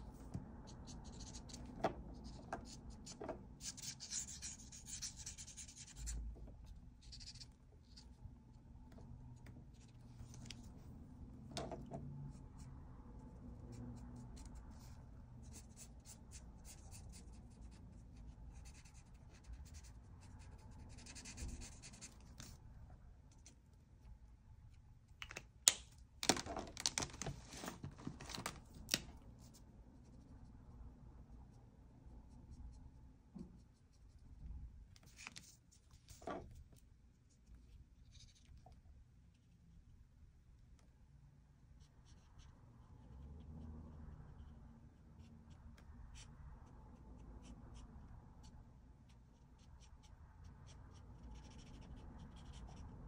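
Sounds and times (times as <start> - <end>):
marker scratching on paper: 0.7 - 6.1, 7.0 - 8.2, 14.0 - 22.6, 49.3 - 52.9.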